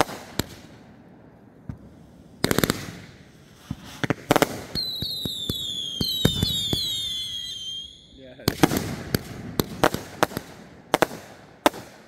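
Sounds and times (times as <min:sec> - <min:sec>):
firework cracks: 0:00.0 - 0:00.8, 0:01.6 - 0:12.0
fireworks bangs: 0:00.0 - 0:01.0, 0:01.6 - 0:12.0
falling firework whistles: 0:02.4 - 0:08.2.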